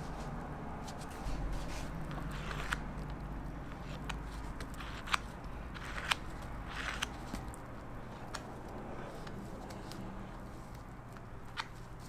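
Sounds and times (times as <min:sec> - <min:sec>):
palette knife smearing frosting: 0:03.7 - 0:12.0.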